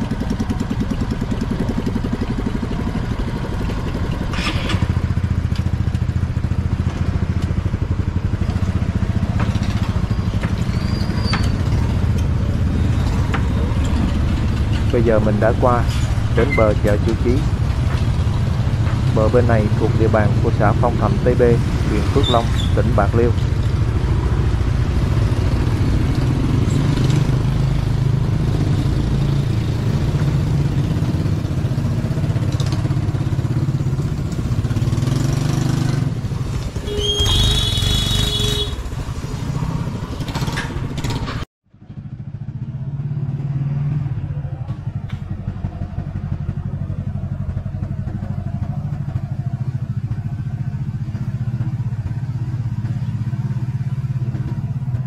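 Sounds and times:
motorcycle engine running: 0.0s - 55.0s
horn beeping: 36.8s - 38.9s.

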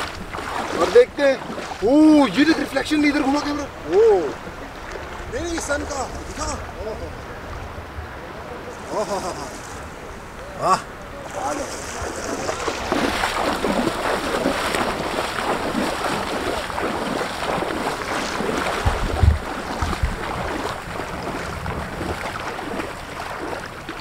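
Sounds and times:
feet splashing in shallow water: 0.0s - 6.6s, 11.2s - 24.0s
low thumps on microphone: 18.8s - 20.5s.

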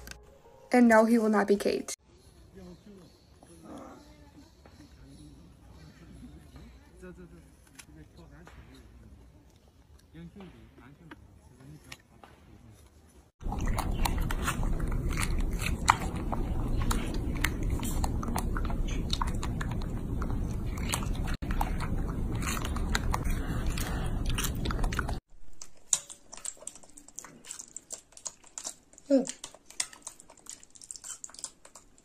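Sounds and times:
steady low rumble: 13.4s - 25.2s
monkey biting and chewing: 13.4s - 32.0s.

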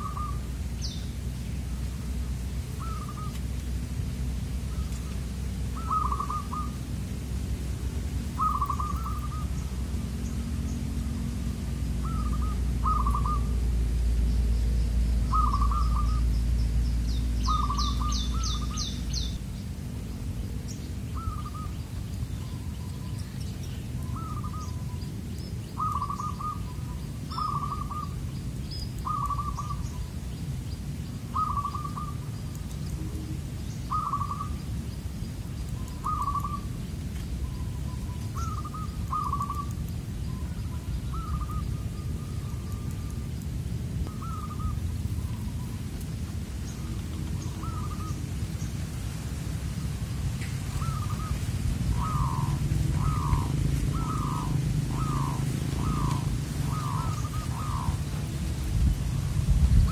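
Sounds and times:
doves cooing: 0.0s - 1.2s, 1.9s - 7.3s, 8.2s - 11.2s, 11.9s - 14.0s, 15.1s - 16.8s, 17.4s - 19.4s, 20.0s - 30.4s, 31.2s - 43.4s, 44.0s - 48.8s, 49.7s - 58.7s
small bird chirping: 0.0s - 1.7s, 2.6s - 3.8s, 4.7s - 7.0s, 8.3s - 10.9s, 12.0s - 48.8s, 49.7s - 58.3s.

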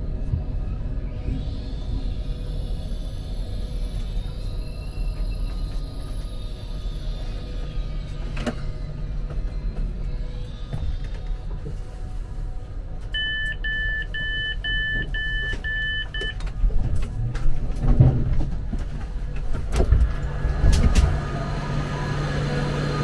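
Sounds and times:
steady low hum: 0.0s - 23.0s
two-tone door warning beeps: 13.1s - 16.4s.

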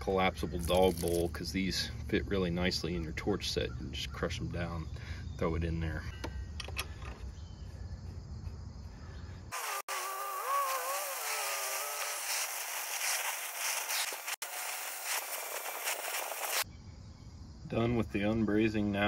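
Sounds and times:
torch flame hissing: 9.5s - 16.6s.

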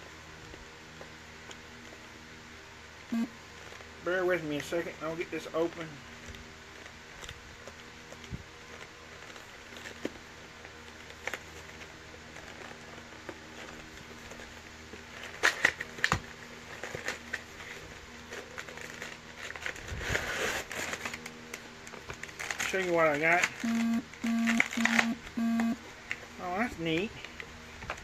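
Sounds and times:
plastic blister pack crinkling: 3.5s - 23.8s.

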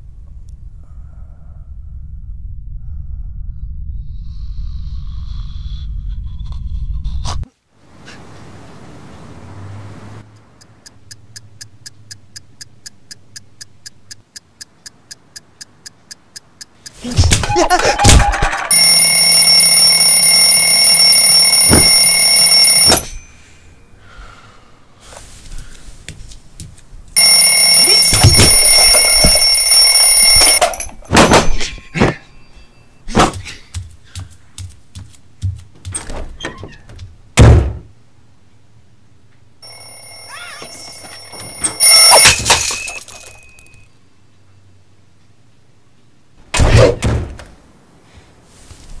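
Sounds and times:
alarm clock bells ringing: 18.6s - 23.8s, 27.2s - 31.4s, 39.6s - 43.9s.

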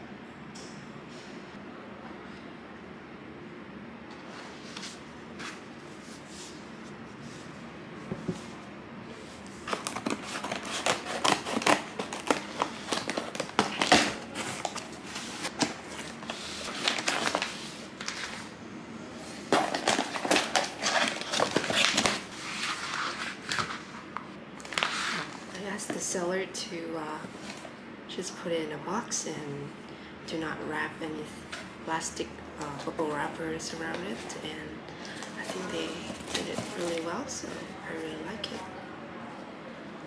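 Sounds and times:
book pages turning: 9.3s - 18.5s, 19.4s - 24.0s, 24.6s - 25.5s, 35.1s - 37.1s
plastic packaging rustling: 9.4s - 18.5s, 19.3s - 25.5s, 35.0s - 37.8s
tape and cardboard tearing: 9.7s - 14.8s.

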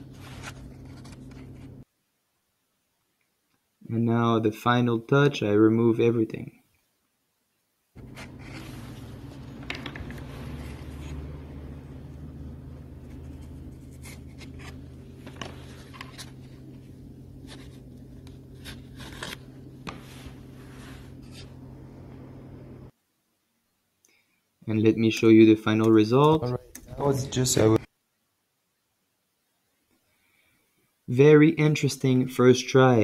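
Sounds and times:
cardboard strips scraping and clicking: 0.0s - 1.8s, 8.0s - 11.3s, 12.9s - 21.5s
steady low hum: 0.0s - 1.8s, 8.0s - 22.9s.

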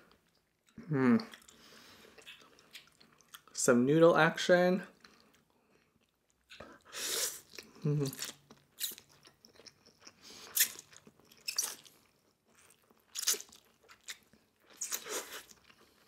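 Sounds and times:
chewing noises: 0.1s - 3.6s.

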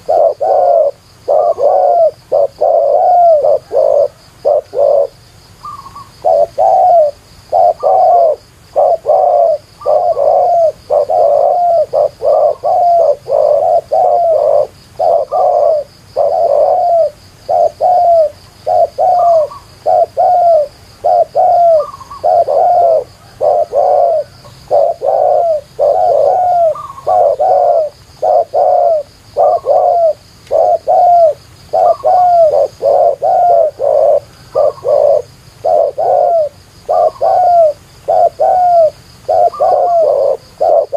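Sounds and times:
doves cooing: 0.0s - 40.9s.

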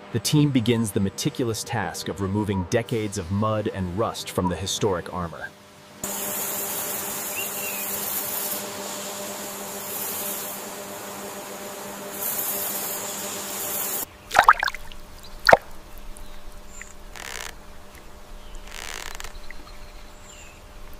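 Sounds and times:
steady ambient hiss: 0.0s - 20.9s
water plops: 14.3s - 16.2s.

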